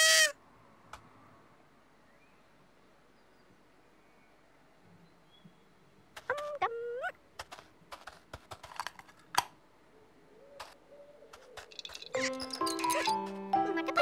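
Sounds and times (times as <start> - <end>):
toy trumpet honks: 0.0 - 0.3.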